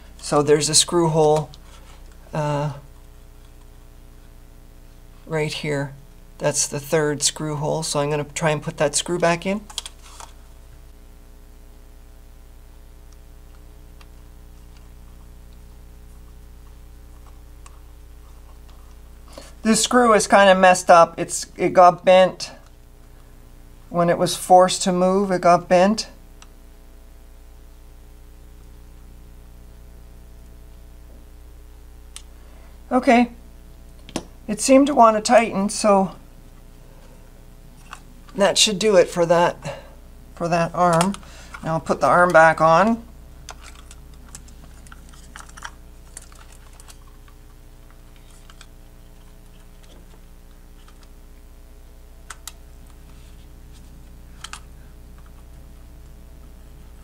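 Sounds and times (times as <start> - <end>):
electrical mains hum: 0.0 - 57.0.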